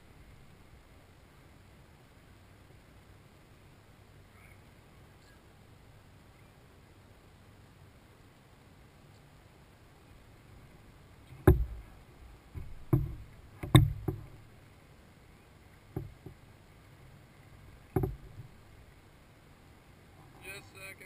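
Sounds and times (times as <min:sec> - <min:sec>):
kayak hull thumps: 0:11.3 - 0:14.5, 0:15.9 - 0:16.4, 0:17.7 - 0:18.8.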